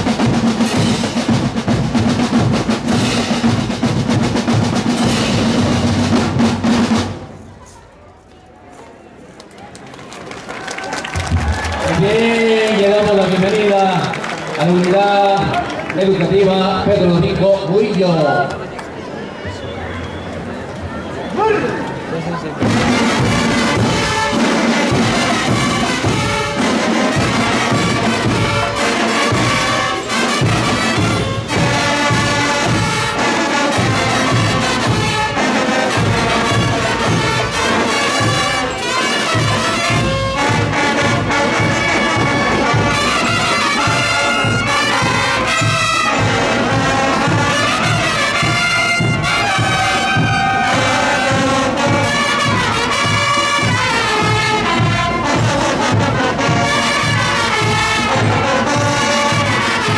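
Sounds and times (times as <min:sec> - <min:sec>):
brass and saxophones melody: 0:00.0 - 0:07.4, 0:22.6 - 0:59.9
drums and crash cymbals: 0:00.0 - 0:07.5, 0:22.6 - 0:59.9.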